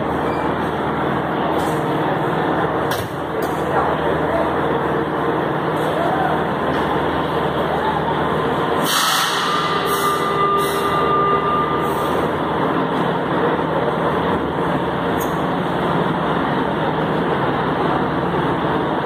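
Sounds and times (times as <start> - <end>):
train equipment humming: 0.0 - 19.0
short hisses: 8.8 - 9.5.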